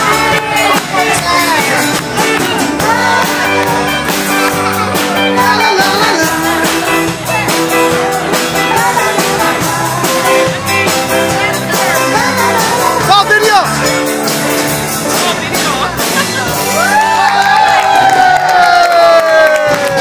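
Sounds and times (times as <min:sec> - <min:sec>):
loud dance music with singing: 0:00.0 - 0:14.0.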